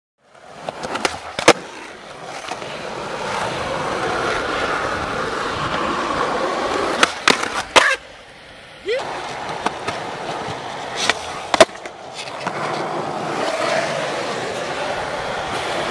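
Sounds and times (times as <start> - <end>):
skateboard wheels rolling on asphalt: 0.2 - 15.9
skateboard clacking on ground: 0.3 - 8.1, 9.0 - 15.9.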